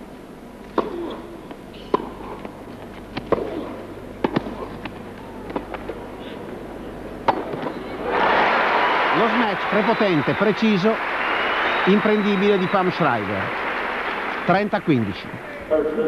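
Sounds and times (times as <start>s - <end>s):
tennis ball bouncing: 0.7s - 6.0s, 7.2s - 7.8s
rackets striking tennis ball: 0.7s - 6.1s, 7.2s - 7.9s.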